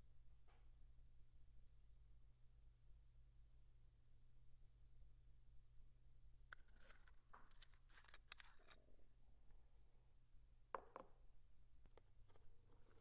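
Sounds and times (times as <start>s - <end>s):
blade scraping thread: 6.6s - 8.8s
razor blade clicks and scratches: 6.6s - 8.8s.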